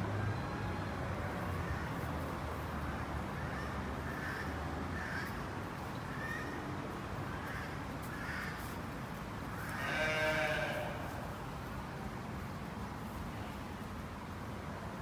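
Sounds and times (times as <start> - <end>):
sheep bleating: 9.7 - 11.1.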